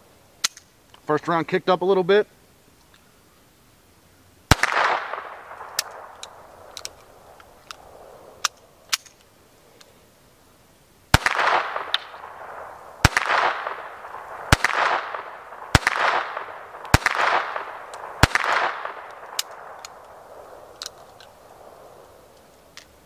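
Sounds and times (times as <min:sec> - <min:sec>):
pistol shots with echo: 0:04.5 - 0:06.1, 0:11.1 - 0:20.5
faint small clicks: 0:19.1 - 0:21.4.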